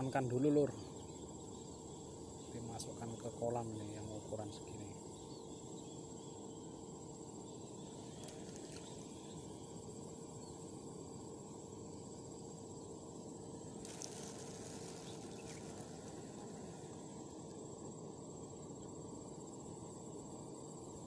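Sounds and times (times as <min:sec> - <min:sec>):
insects trilling: 0:00.0 - 0:21.0
low outdoor background noise: 0:00.0 - 0:21.0
short rustle: 0:13.8 - 0:17.1.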